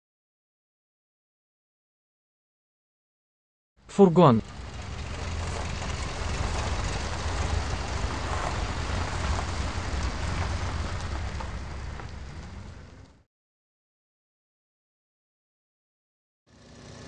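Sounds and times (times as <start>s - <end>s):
van engine rumble: 3.9s - 13.2s.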